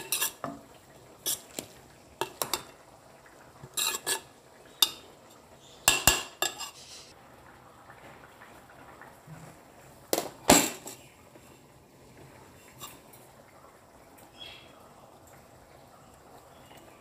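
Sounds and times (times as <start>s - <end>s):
spatula scraping a metal pot: 0.0s - 0.5s, 1.2s - 1.6s, 3.6s - 5.0s, 5.9s - 7.1s.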